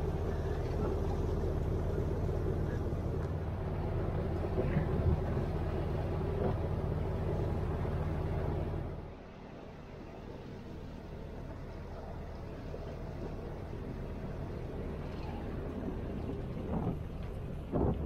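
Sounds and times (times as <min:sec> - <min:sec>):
boat engine humming: 0:00.0 - 0:18.0
water noise: 0:00.0 - 0:18.0
wind noise: 0:15.0 - 0:18.0.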